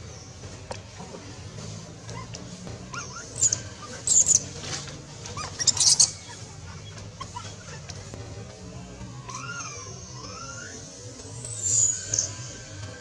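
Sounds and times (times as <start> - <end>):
baby monkey shrill squeals: 2.1 - 4.5, 5.3 - 8.0, 9.2 - 10.9, 11.5 - 12.7.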